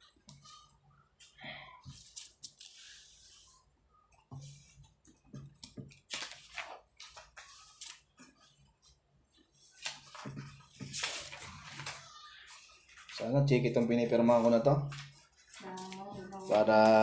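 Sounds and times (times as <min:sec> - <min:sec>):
paper pages rustling: 0:00.3 - 0:03.6, 0:04.4 - 0:17.0.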